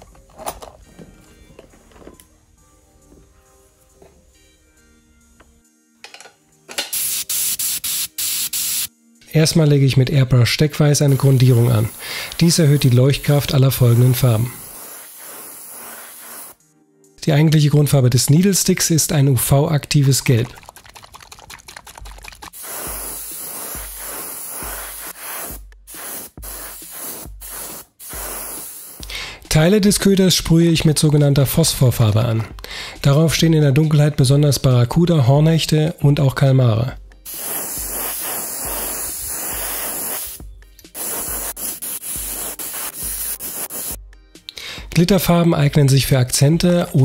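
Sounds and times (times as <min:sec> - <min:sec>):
airbrush spraying paint: 0:06.9 - 0:08.9, 0:11.0 - 0:16.6, 0:20.6 - 0:29.1, 0:37.3 - 0:44.0.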